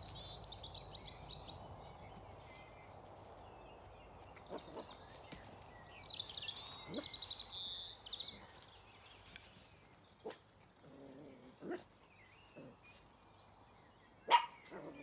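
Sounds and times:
small dog barking: 14.3 - 15.0.

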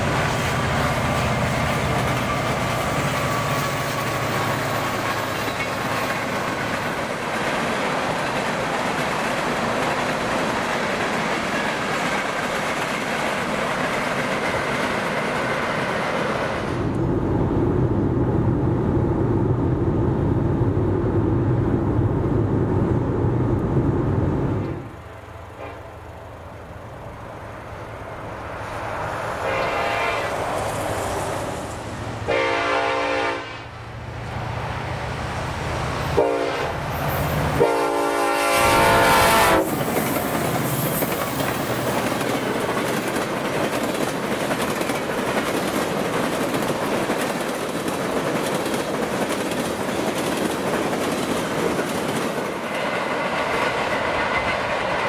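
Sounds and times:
train wheels rumbling on rails: 0.0 - 55.0
locomotive air horn: 25.6 - 25.9, 29.4 - 30.4, 32.3 - 33.7, 36.1 - 36.8, 37.5 - 39.7.

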